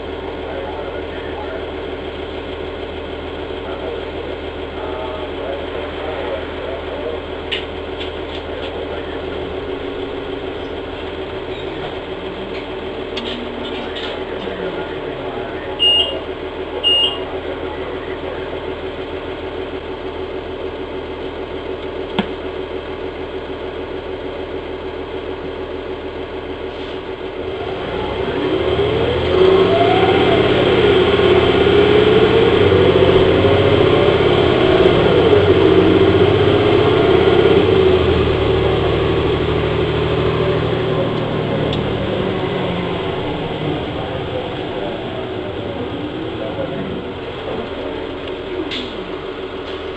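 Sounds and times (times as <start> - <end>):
bus diesel engine: 0.0 - 49.9
short high beeps: 15.8 - 16.2, 16.8 - 17.2.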